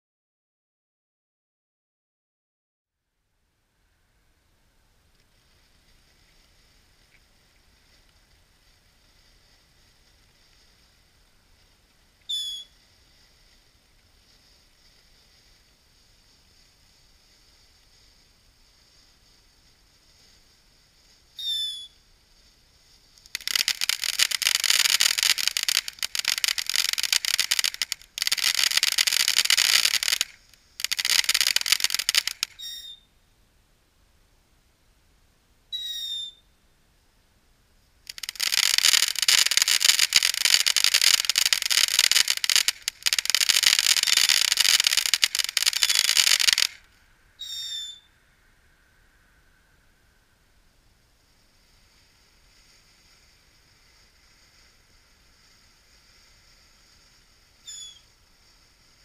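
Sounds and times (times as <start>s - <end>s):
firework fountain crackling: 4.8s - 33.0s, 37.7s - 48.1s, 50.7s - 59.0s
firework piercing whistles: 12.2s - 12.8s, 21.3s - 22.0s, 23.3s - 33.1s, 35.7s - 36.5s, 38.1s - 46.8s, 47.4s - 48.1s, 57.5s - 58.2s.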